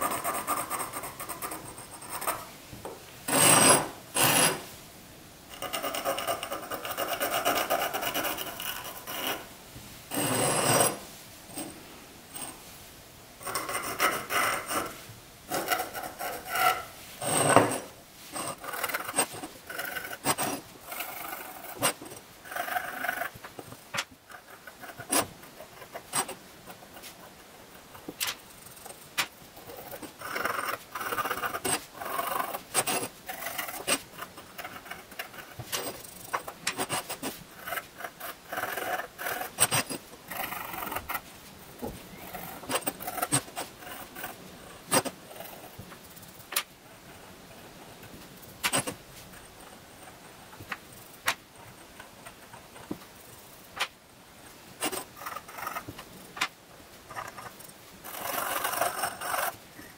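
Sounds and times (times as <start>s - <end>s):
toothpick scratching glaze: 0.0s - 2.4s, 5.6s - 9.4s, 13.4s - 41.2s, 42.2s - 45.7s, 54.8s - 55.9s, 57.1s - 59.6s.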